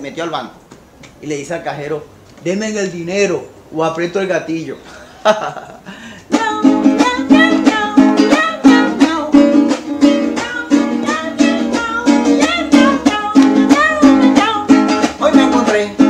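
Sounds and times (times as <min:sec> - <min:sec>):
small guitar strummed: 0:06.3 - 0:16.0.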